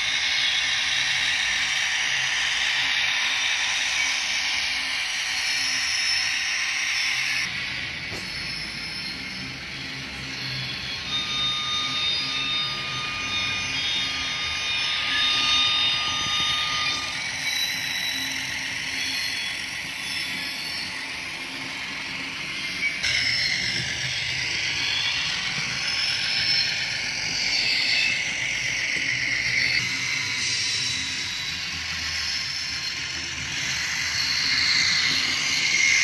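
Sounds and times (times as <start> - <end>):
model train running on track: 0.0 - 36.0
steady high whine: 0.0 - 36.0.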